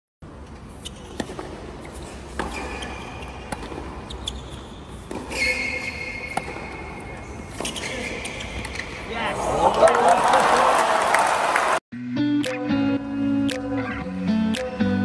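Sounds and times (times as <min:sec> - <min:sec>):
shoes squeaking on court: 0:00.5 - 0:09.2
tennis ball bouncing on hard court: 0:00.7 - 0:07.9
tennis ball hit by racket: 0:01.1 - 0:01.7, 0:02.3 - 0:04.1, 0:05.0 - 0:07.0.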